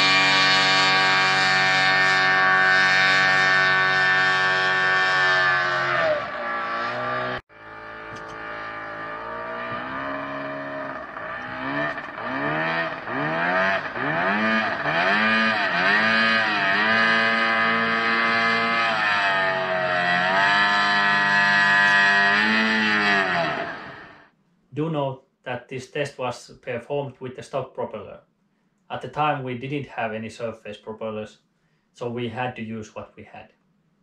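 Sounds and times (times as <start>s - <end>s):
outboard motor running hard: 0.0s - 6.0s, 7.5s - 24.2s.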